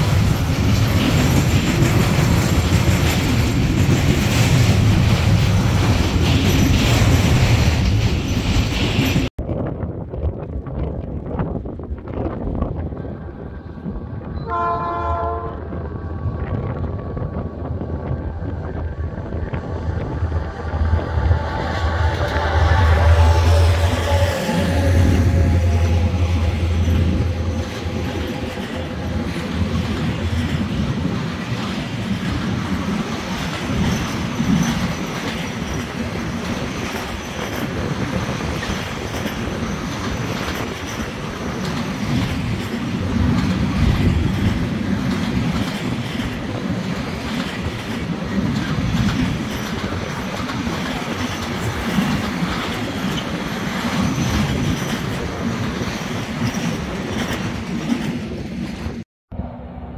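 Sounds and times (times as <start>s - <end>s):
wheels clattering over rail joints: 0.0s - 9.3s, 25.5s - 59.0s
train wagons rumbling past: 0.0s - 9.6s, 10.3s - 59.9s.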